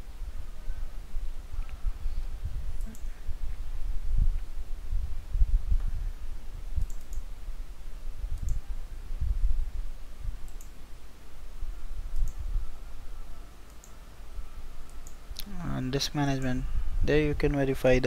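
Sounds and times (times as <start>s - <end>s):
computer mouse clicks: 2.8s - 3.2s, 6.8s - 7.3s, 8.3s - 8.6s, 10.4s - 10.8s, 12.1s - 12.4s, 13.6s - 14.0s, 14.8s - 15.5s.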